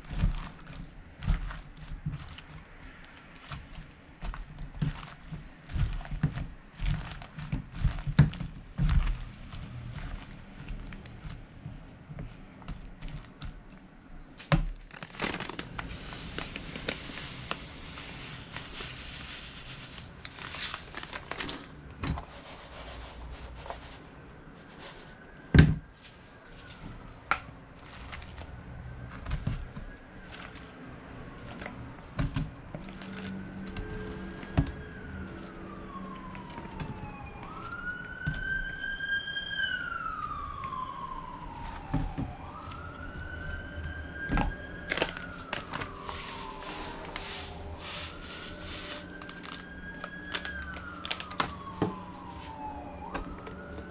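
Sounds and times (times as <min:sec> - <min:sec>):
breadcrumbs pouring into plastic container: 0:15.0 - 0:24.1, 0:44.9 - 0:51.3
siren wailing: 0:33.2 - 0:53.9.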